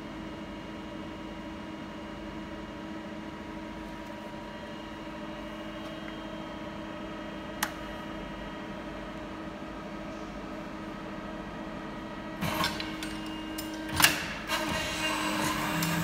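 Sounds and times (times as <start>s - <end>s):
hydraulic machine humming: 12.3s - 16.0s.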